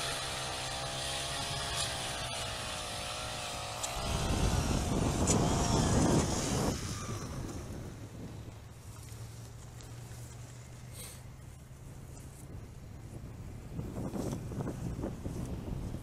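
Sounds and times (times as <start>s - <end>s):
ice auger motor drilling: 0.0s - 9.3s.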